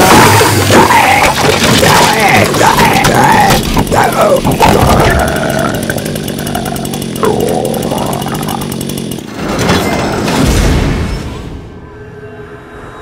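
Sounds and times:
chainsaw engine revving: 0:00.0 - 0:09.6.

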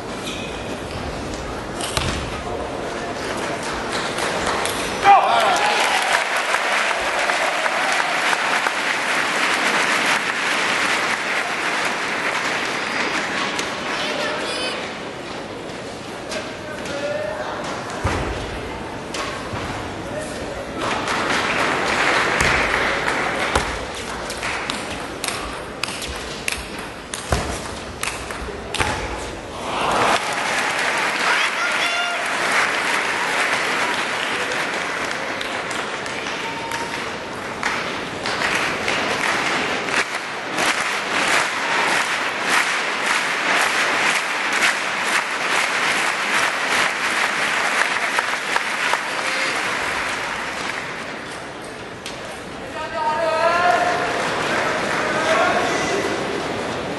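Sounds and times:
crowd murmur: 0:28.0 - 0:52.7, 0:53.8 - 0:56.9.

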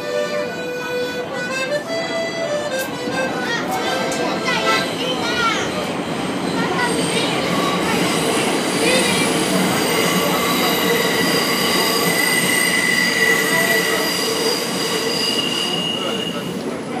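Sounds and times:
wheels squealing on rails: 0:03.7 - 0:17.0.

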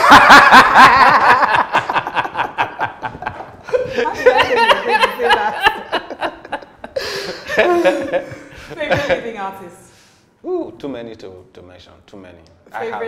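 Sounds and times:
laughter: 0:00.0 - 0:09.4.

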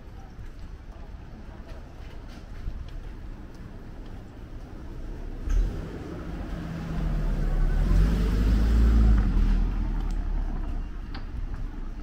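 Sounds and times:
vehicle driving past: 0:05.5 - 0:11.0.

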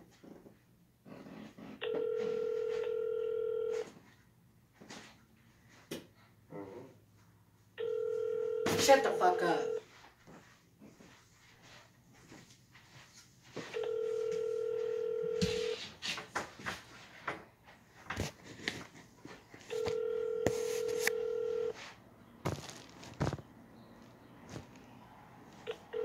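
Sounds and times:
telephone ringback tone: 0:01.8 - 0:03.9, 0:07.8 - 0:09.8, 0:13.7 - 0:15.8, 0:19.7 - 0:21.8, 0:25.7 - 0:26.0.

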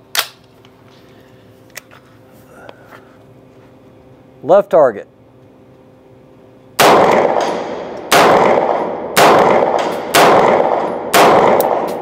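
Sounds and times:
gunshots echoing indoors: 0:06.8 - 0:12.0.

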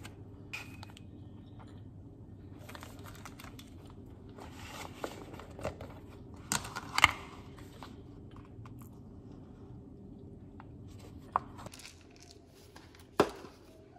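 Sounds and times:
plastic packaging crinkling: 0:02.6 - 0:04.0.

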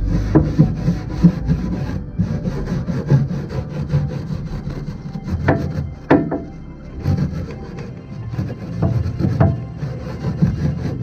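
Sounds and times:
brush scrubbing steel rails: 0:00.0 - 0:11.0
sharp knocks: 0:05.3 - 0:06.5.

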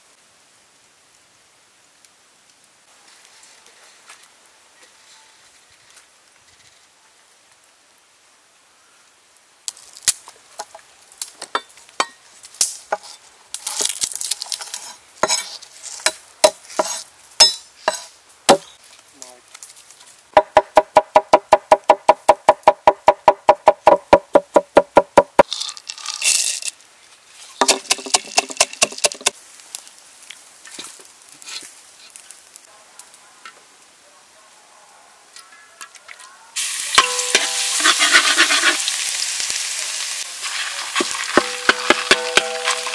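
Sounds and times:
garlic sizzling in hot oil: 0:36.6 - 0:42.9.

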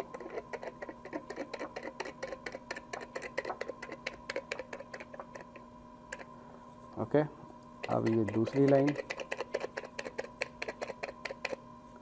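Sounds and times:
pin piercing foil ticks: 0:07.9 - 0:09.0.

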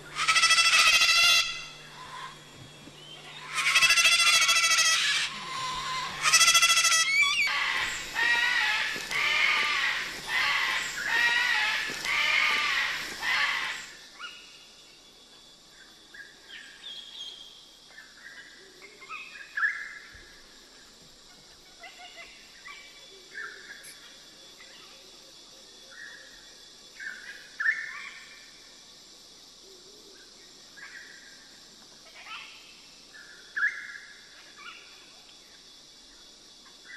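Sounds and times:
cockatoo screaming: 0:00.1 - 0:02.4, 0:03.4 - 0:13.9
small birds chirping: 0:05.3 - 0:13.9.

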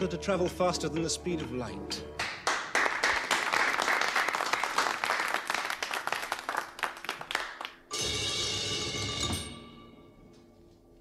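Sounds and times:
people applauding: 0:02.2 - 0:07.9.

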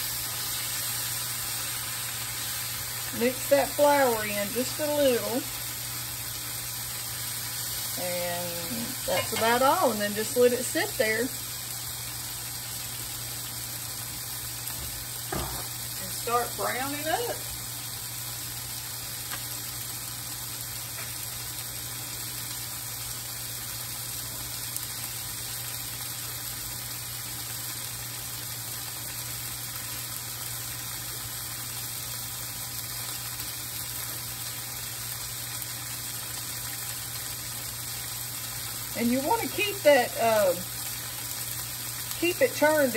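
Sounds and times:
low electrical hum: 0:00.0 - 0:42.9
vegetables sizzling in oil: 0:00.0 - 0:42.9.

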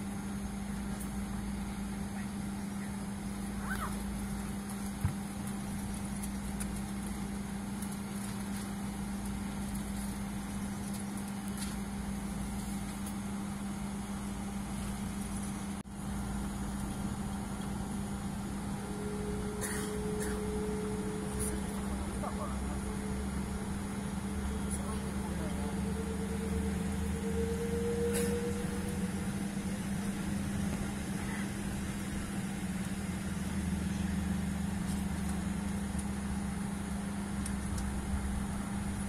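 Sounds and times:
aircraft cabin engine hum: 0:00.0 - 0:39.0
faint higher tone: 0:18.4 - 0:31.5.

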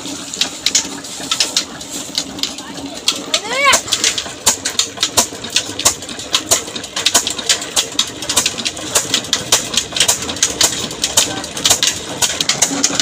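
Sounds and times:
diesel engine knocking: 0:00.0 - 0:13.0.

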